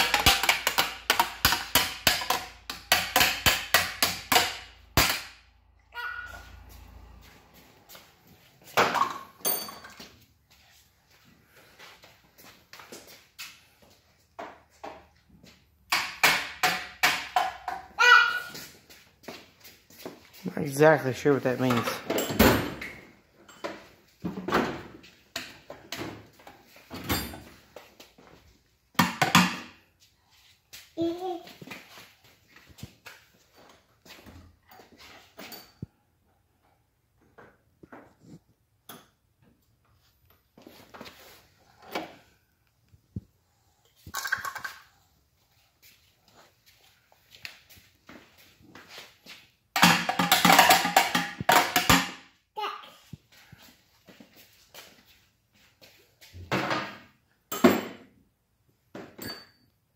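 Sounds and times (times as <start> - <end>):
wrench clanking on metal drawers: 21.7 - 23.8.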